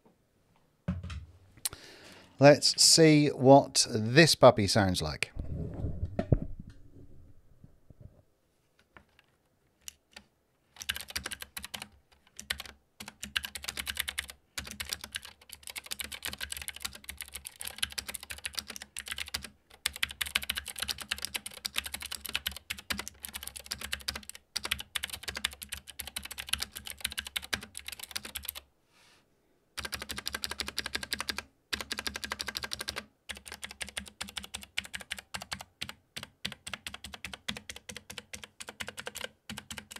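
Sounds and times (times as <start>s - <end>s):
clicky keyboard typing: 9.1s - 28.6s, 29.8s - 39.9s.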